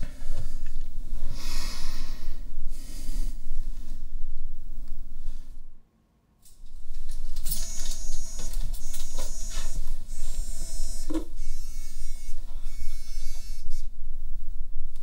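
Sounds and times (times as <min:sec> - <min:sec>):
phone vibrating on counter: 0:07.6 - 0:13.9.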